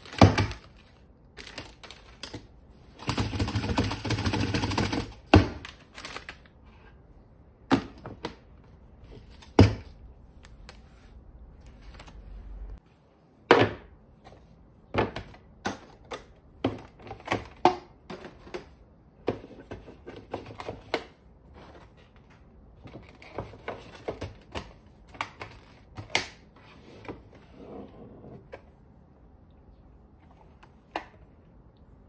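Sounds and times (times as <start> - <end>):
plastic trays clacking and knocking: 7.7 - 8.6, 14.9 - 21.2.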